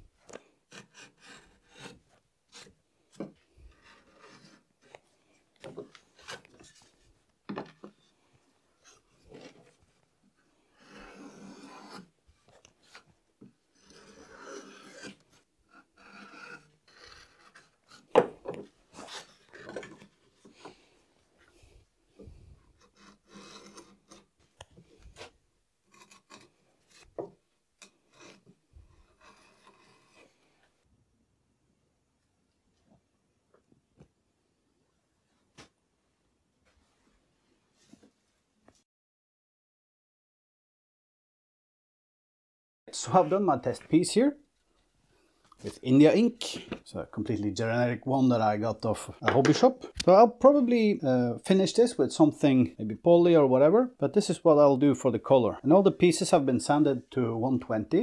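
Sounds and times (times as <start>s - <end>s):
hand tool scraping wood: 0.2s - 5.0s, 5.6s - 7.0s, 10.6s - 13.1s, 13.7s - 20.8s, 22.2s - 30.6s.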